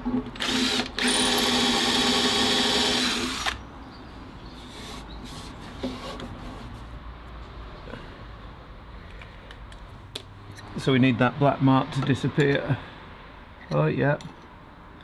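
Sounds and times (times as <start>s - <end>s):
cordless drill drilling into wood: 0.4s - 3.6s.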